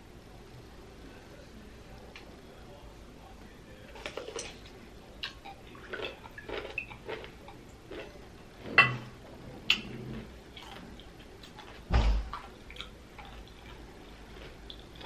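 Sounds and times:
pickle crunching while chewed: 3.9 - 8.2, 10.5 - 15.0.

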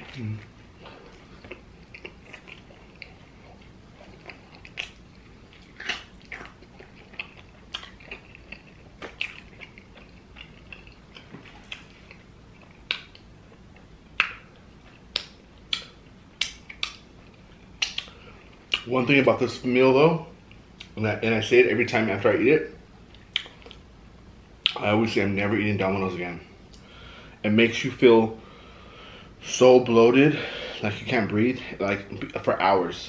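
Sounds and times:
person chewing: 0.0 - 18.9, 23.1 - 23.8.

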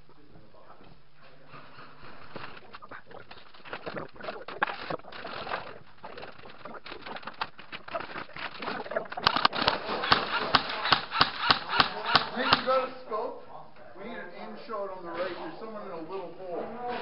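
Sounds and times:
scattered clicks and scuffs: 2.0 - 12.7
airsoft guns firing: 9.2 - 12.9.

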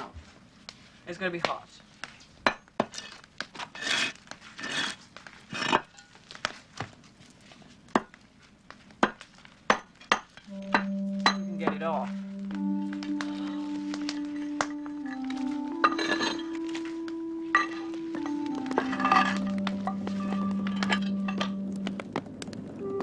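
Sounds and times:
scraping: 2.9 - 6.5
sustained music tones: 10.5 - 23.0.

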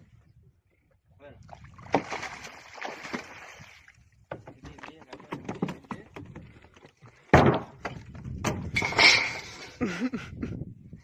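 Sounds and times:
knocks and thuds on wooden boat: 4.2 - 9.0.

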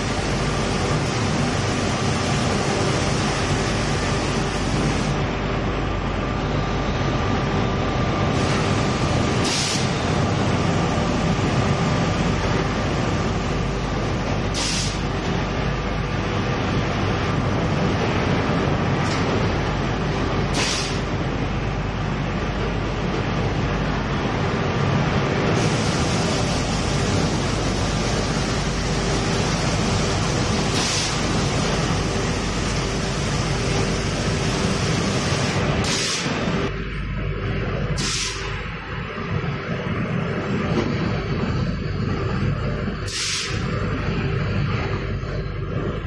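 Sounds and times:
machinery running: 0.0 - 46.0
short hisses: 38.0 - 38.5, 43.1 - 43.6.

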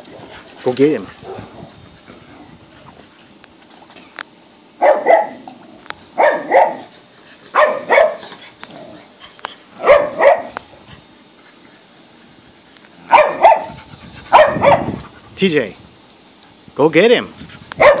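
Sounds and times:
dog barking: 4.8 - 5.4, 6.2 - 6.9, 7.5 - 8.2, 9.8 - 10.6, 13.1 - 15.0, 17.8 - 18.0.

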